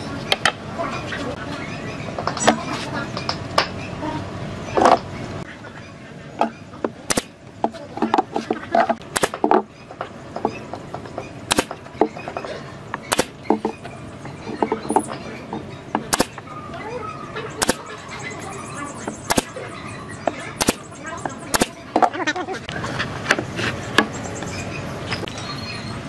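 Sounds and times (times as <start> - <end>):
nail gun shots: 7.1 - 7.4, 9.1 - 9.6, 11.5 - 11.8, 13.1 - 13.6, 16.1 - 16.4, 17.6 - 18.0, 19.3 - 19.6, 20.6 - 20.9, 21.5 - 21.8.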